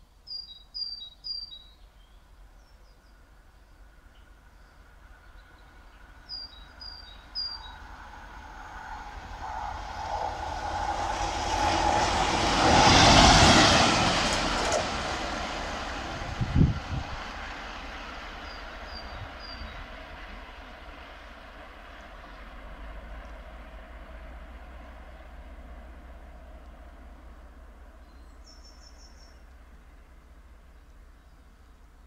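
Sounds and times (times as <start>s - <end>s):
small birds chirping: 0.2s - 7.9s, 18.4s - 19.9s, 27.9s - 30.0s
diesel locomotive passing: 3.1s - 32.0s.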